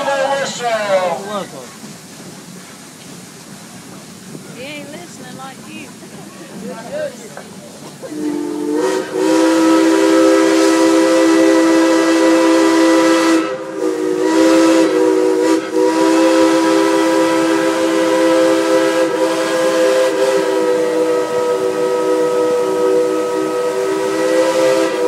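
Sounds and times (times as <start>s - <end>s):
steam locomotive whistle chord: 8.1s - 25.0s.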